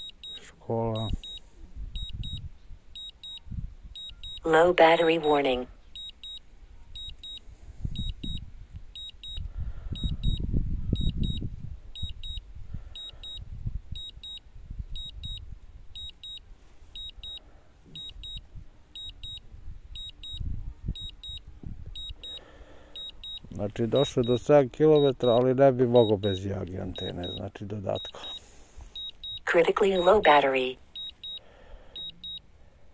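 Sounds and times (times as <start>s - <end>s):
short high warning beeps: 0.0s - 2.4s, 3.0s - 6.4s, 7.0s - 7.4s, 8.0s - 8.4s, 9.0s - 11.4s, 13.0s - 14.4s, 15.0s - 15.4s, 16.0s - 16.4s, 17.0s - 18.4s, 19.0s - 19.4s, 20.0s - 20.4s, 21.0s - 21.4s, 22.0s - 32.4s.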